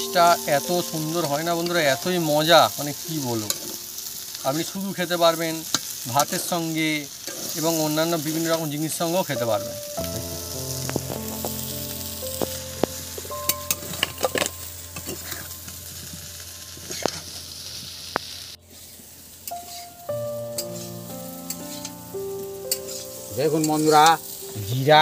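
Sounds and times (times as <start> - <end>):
potatoes sizzling in oil: 0.0 - 25.0
spatula scraping a pan: 18.7 - 20.0, 20.6 - 22.0, 22.7 - 23.8.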